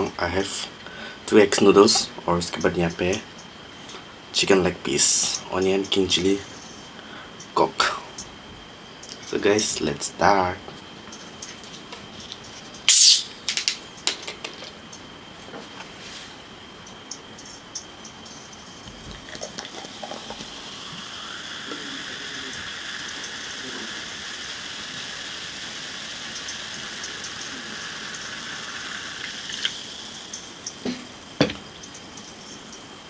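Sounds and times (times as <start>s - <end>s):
cola fizzing: 17.4s - 32.8s
cola pouring into glass: 18.8s - 31.0s.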